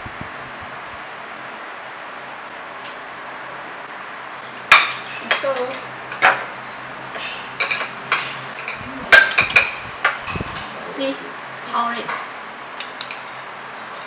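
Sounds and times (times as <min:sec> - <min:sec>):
utensils clinking against ceramic bowls: 0:04.4 - 0:06.5, 0:07.6 - 0:10.8, 0:12.1 - 0:13.4.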